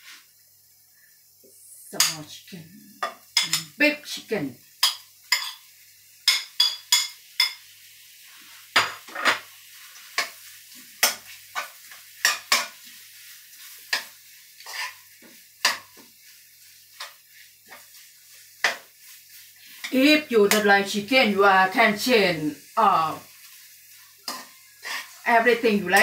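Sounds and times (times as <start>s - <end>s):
faint sizzle of frying: 0.0s - 26.0s
metal spoon scraping frying pan: 3.0s - 3.8s, 4.8s - 5.6s, 11.0s - 13.0s, 13.6s - 15.0s, 24.2s - 25.2s.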